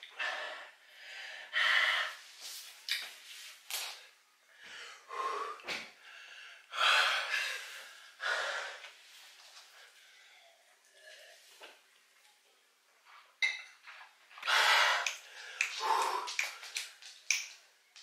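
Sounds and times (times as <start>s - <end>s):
person gasping and breathing hard: 14.4s - 16.8s.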